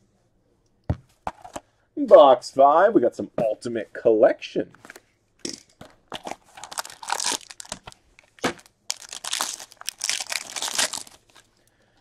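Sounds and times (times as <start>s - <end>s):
foil wrapper tearing and crinkling: 6.2s - 11.5s.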